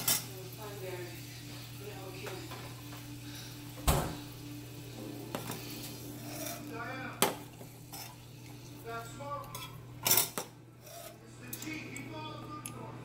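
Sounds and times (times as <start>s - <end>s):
metal cookware clanking: 0.0s - 0.4s, 5.2s - 8.4s, 9.4s - 11.8s
steady low hum: 0.0s - 13.0s.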